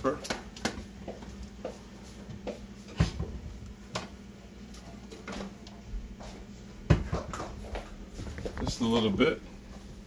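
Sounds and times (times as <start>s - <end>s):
items knocking on countertop: 6.8s - 7.9s.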